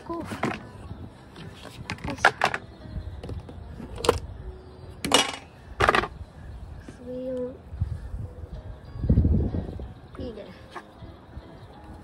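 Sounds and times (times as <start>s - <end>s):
plastic containers knocking and clattering: 1.8s - 4.2s.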